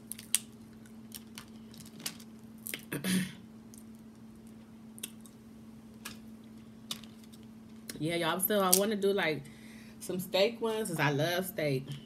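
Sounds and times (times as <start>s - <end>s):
crab shells cracking: 0.0s - 2.9s.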